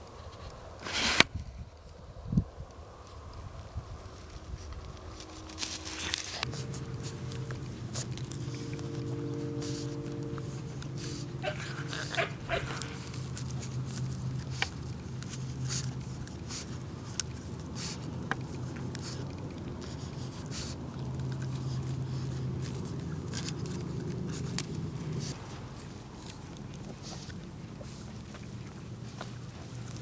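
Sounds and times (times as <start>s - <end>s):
scratches and clicks in dirt: 0.0s - 30.0s
puppy making low dog sound: 6.4s - 14.4s.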